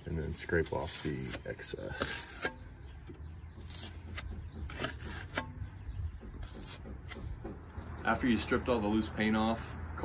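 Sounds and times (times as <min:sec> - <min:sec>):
putty knife scraping wood: 0:00.5 - 0:02.6, 0:03.5 - 0:05.7, 0:06.3 - 0:07.3
blade knocking on wood: 0:03.5 - 0:08.0.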